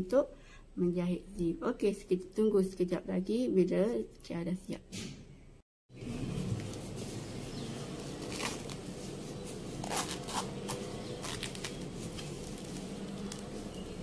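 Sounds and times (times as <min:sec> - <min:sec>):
zip scratchy rasps: 0:09.8 - 0:12.8.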